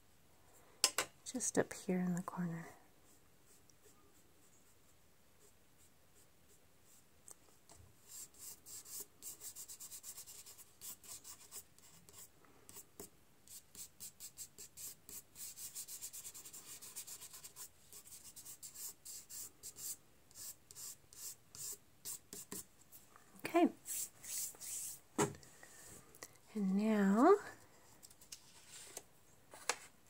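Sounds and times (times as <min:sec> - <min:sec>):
sponge scrubbing on paper: 0:23.8 - 0:25.0.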